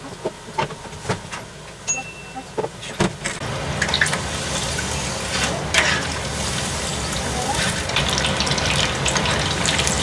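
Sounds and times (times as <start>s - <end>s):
chicken sizzling in hot oil: 3.4s - 10.0s
oil crackling and popping: 3.8s - 10.0s.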